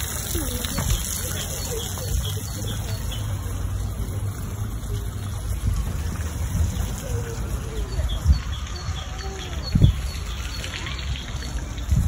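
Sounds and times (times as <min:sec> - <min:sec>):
birds chirping: 0:00.2 - 0:03.9, 0:06.7 - 0:12.0.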